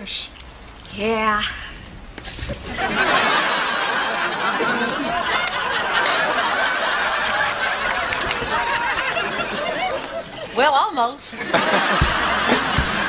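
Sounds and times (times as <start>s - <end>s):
studio audience laughing: 2.6s - 10.4s, 11.3s - 13.0s.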